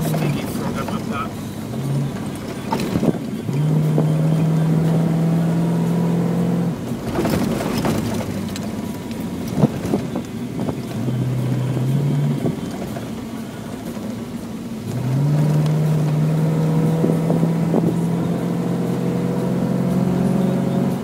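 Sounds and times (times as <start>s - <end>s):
rally car engine running hard: 0.0s - 21.0s
rattles and knocks in cabin: 7.0s - 10.8s.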